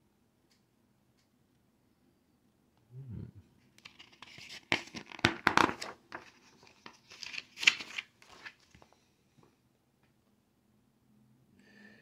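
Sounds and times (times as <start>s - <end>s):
paper page turning: 3.8s - 8.9s.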